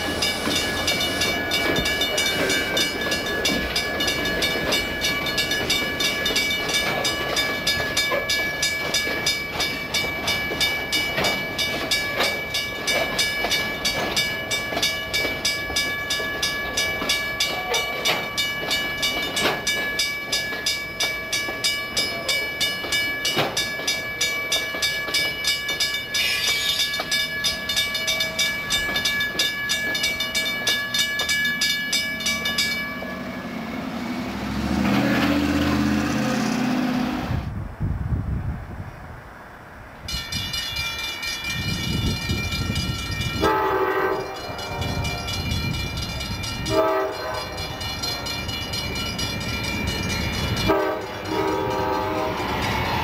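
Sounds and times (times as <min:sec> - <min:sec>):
train wheels clicking over rails: 0:00.0 - 0:32.8
crossing bell ringing: 0:00.0 - 0:34.7, 0:40.0 - 0:53.0
low train rumble: 0:00.0 - 0:53.0.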